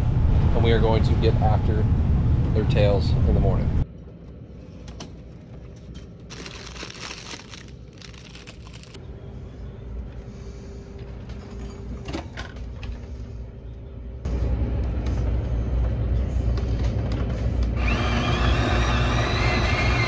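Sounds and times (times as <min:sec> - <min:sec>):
loud low rumble: 0:00.0 - 0:03.8
plastic wrapping crinkling: 0:06.3 - 0:09.0
low engine drone: 0:06.3 - 0:18.0.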